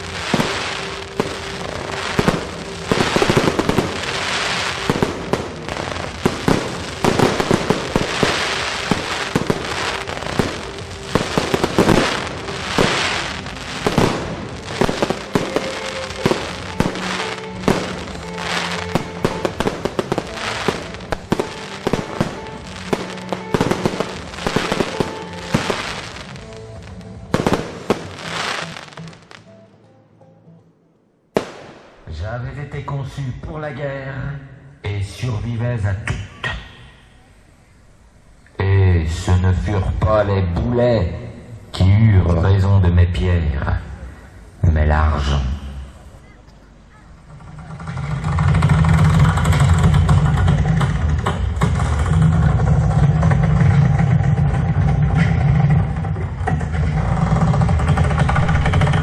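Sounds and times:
fireworks bursting and crackling: 0.0s - 29.5s, 31.4s - 32.3s, 44.0s - 59.0s
music with long held notes: 0.0s - 32.0s.

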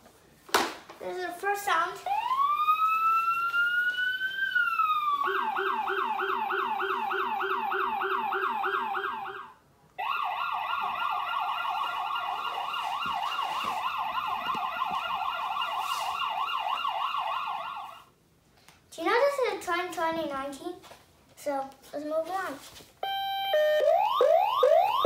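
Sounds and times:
electronic toy siren: 2.1s - 18.1s, 23.0s - 25.0s.

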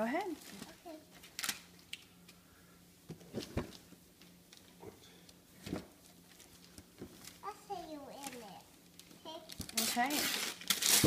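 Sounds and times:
wrapping paper tearing and crinkling: 0.4s - 1.9s, 8.2s - 11.0s.

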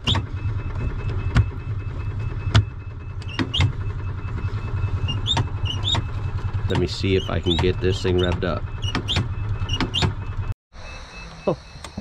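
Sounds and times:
golf cart engine running unevenly: 0.0s - 9.4s
sharp engine knocks: 0.0s - 10.5s
reverse warning beeper: 0.0s - 12.0s.

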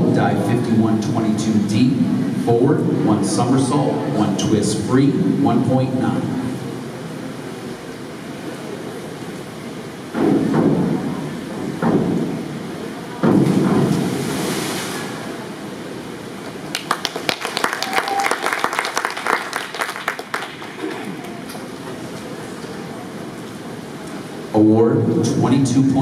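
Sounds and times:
diving board banging: 10.1s - 15.5s
diver splashing into water: 13.3s - 15.4s
people clapping: 16.5s - 22.0s.

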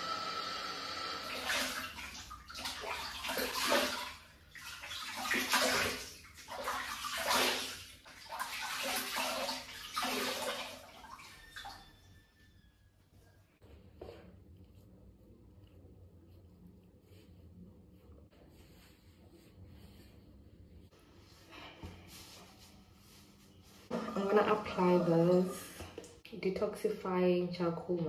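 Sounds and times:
water splashing onto face: 1.4s - 11.7s.

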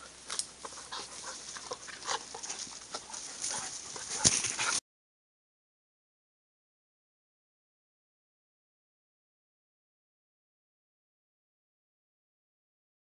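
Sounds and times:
dogs rustling in brush: 0.0s - 4.8s.

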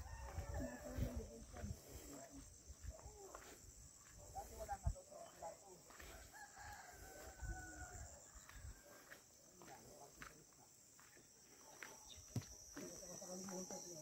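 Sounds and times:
rooster crowing: 0.0s - 1.2s, 6.1s - 9.2s
insects droning: 0.0s - 14.0s.

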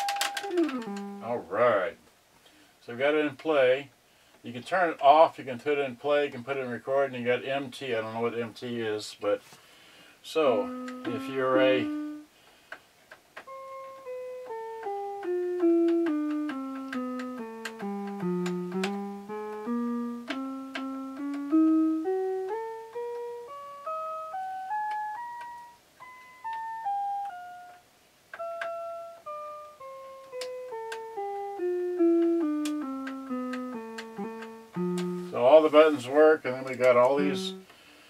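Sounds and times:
electronic keyboard notes: 0.0s - 1.9s, 10.4s - 12.3s, 13.4s - 37.7s.

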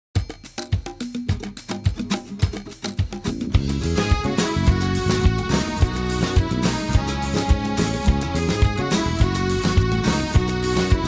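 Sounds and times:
clicking hand percussion: 0.2s - 11.0s
steady kick drum beat: 0.2s - 11.0s
bass line: 3.3s - 11.0s
pop music track: 3.5s - 11.0s.

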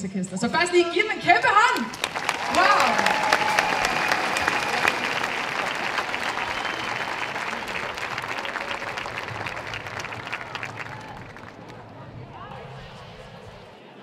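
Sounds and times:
crowd applauding: 1.6s - 12.0s.

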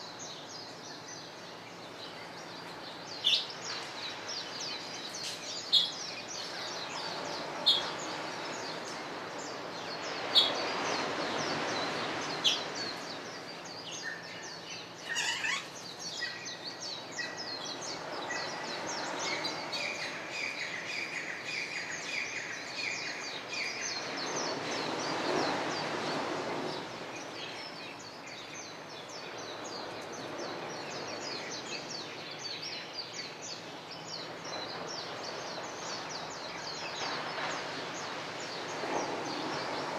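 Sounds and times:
birds chirping: 0.0s - 39.9s
small waves washing on sand: 2.3s - 16.8s, 17.7s - 32.4s, 33.3s - 39.9s
bird trill: 15.0s - 16.5s.

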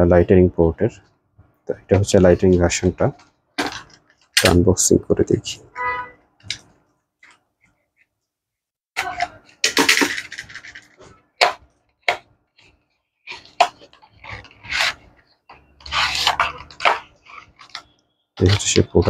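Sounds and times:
cardboard scraping and rustling: 13.3s - 18.9s.

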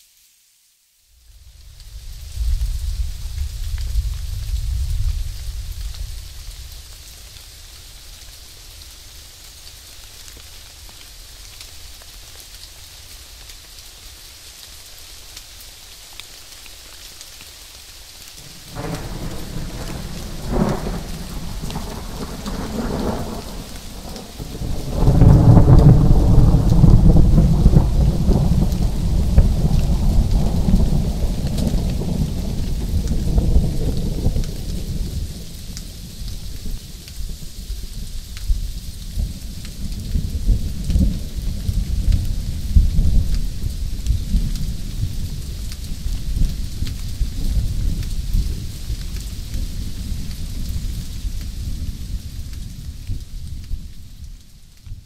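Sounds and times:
steady rain falling: 0.0s - 55.0s
rolling thunder: 2.0s - 6.8s, 18.4s - 37.5s.

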